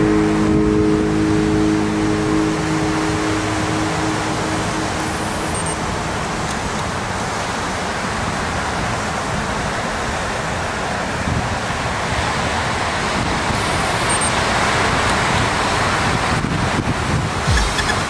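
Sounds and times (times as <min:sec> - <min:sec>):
ocean surf breaking: 0:00.0 - 0:18.0.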